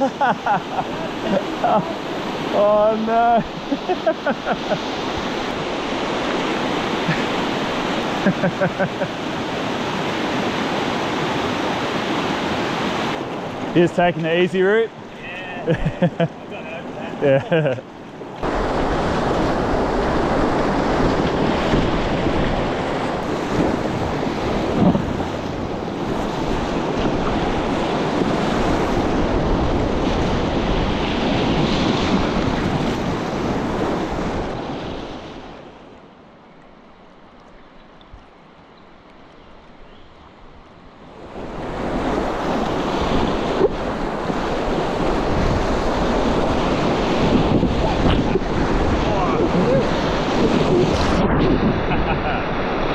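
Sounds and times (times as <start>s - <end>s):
whitewater rapids rushing: 0.0s - 34.6s, 41.4s - 52.9s
wind buffeting microphone: 18.4s - 35.6s, 40.3s - 52.9s.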